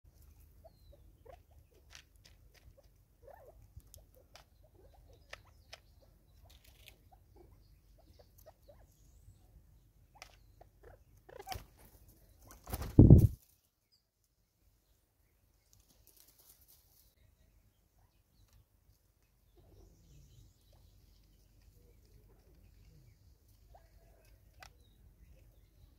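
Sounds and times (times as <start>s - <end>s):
birds pecking at seed and leaves: 0.1s - 25.9s
wings flapping: 11.3s - 13.6s.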